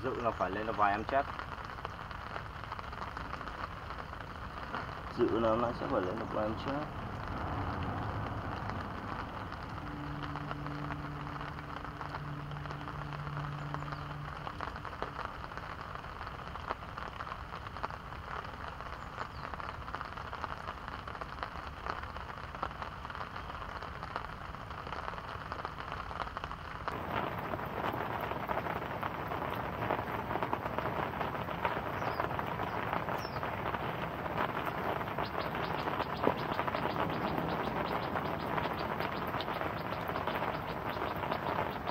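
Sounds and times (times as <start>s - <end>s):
rain falling on a pond: 0.0s - 41.9s
low hum: 6.8s - 16.0s.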